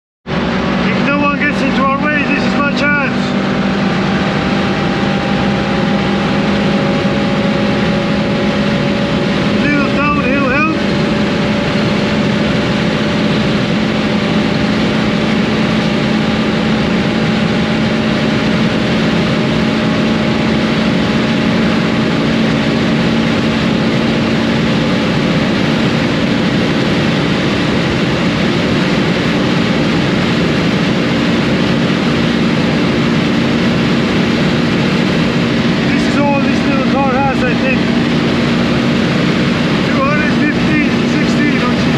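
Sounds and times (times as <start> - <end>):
car engine high-rpm drone: 0.2 - 41.9
wind and tyre noise: 0.2 - 41.9.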